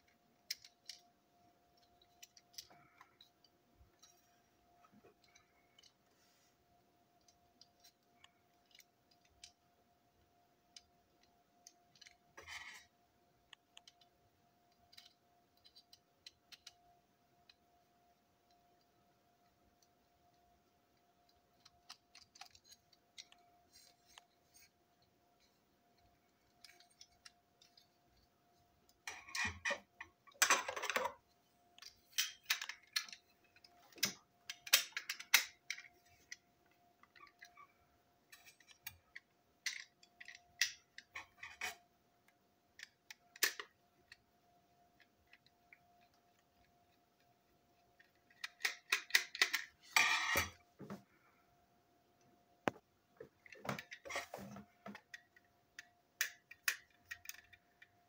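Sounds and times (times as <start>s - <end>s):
plastic clicks scrapes and rattles: 19.7s - 28.3s, 45.0s - 50.6s.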